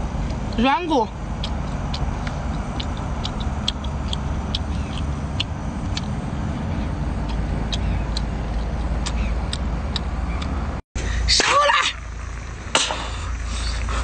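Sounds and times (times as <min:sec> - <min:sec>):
steady low rumble: 0:00.0 - 0:14.0
wet mouth chewing clicks: 0:01.3 - 0:06.2, 0:06.8 - 0:10.6.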